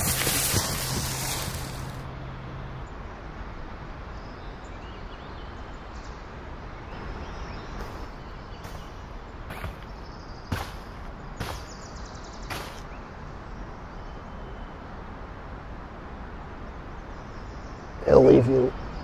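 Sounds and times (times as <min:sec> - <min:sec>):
outdoor background noise: 0:00.0 - 0:19.0
faint bird chirps: 0:04.2 - 0:14.9.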